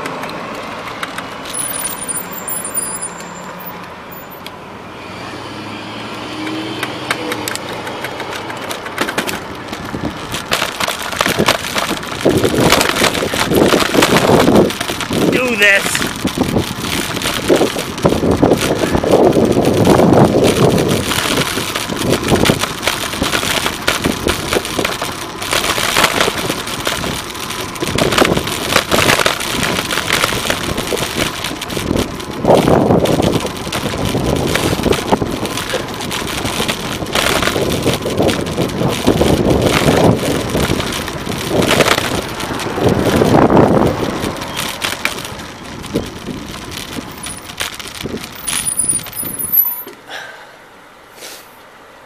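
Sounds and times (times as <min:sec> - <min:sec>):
passing motor traffic rumble: 0:00.0 - 0:52.0
wind rushing over microphone: 0:09.4 - 0:49.6.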